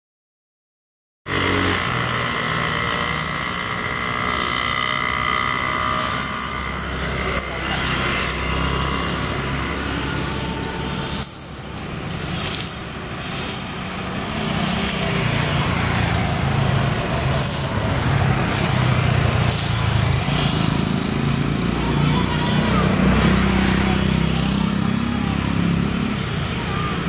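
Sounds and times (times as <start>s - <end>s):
diesel locomotive engines humming: 1.7s - 22.8s.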